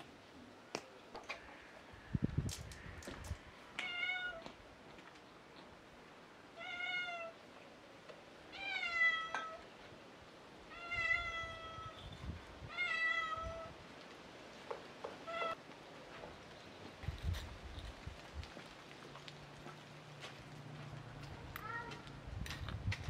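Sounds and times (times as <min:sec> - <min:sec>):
cat meowing: 0:03.8 - 0:04.5, 0:06.6 - 0:07.4, 0:10.7 - 0:12.0, 0:12.7 - 0:13.7.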